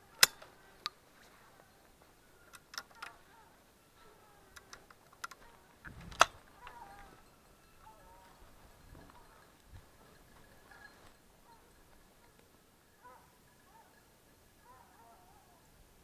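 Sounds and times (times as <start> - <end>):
sharp clicks and knocks of handling: 0.0 - 1.0, 2.4 - 3.4, 4.5 - 7.1.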